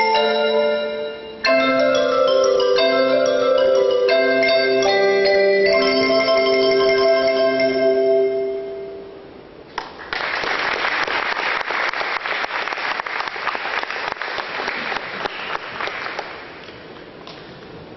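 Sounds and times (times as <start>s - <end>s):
mallet percussion chord ringing: 0.0s - 9.2s
audience applause: 9.8s - 16.6s.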